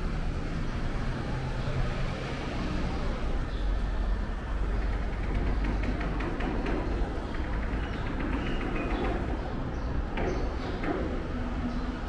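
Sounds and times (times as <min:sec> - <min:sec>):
low rumble of traffic: 0:00.0 - 0:12.0.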